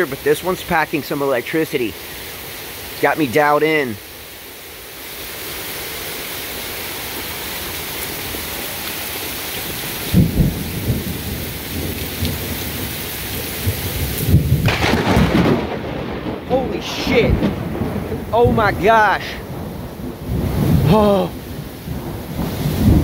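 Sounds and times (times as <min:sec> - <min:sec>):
heavy rain pouring: 0:00.0 - 0:23.0
thunder rumbling: 0:09.8 - 0:23.0
close lightning strike thunder: 0:10.1 - 0:12.9, 0:13.6 - 0:23.0.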